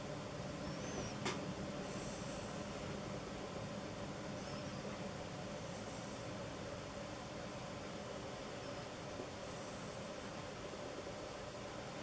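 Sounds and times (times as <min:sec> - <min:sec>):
low background hum: 0:00.0 - 0:12.0
faint high chirp: 0:00.6 - 0:01.3, 0:04.3 - 0:05.0, 0:08.6 - 0:09.0.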